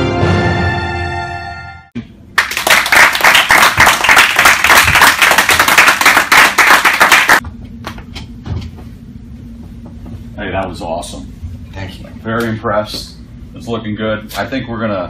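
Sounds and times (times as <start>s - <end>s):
group of people applauding: 2.4s - 7.4s.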